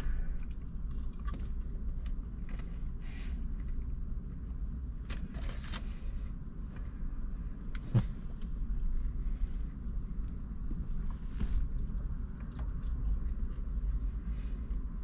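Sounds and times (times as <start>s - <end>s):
low rumble inside a car: 0.0s - 15.0s
man chewing fries: 0.3s - 2.6s.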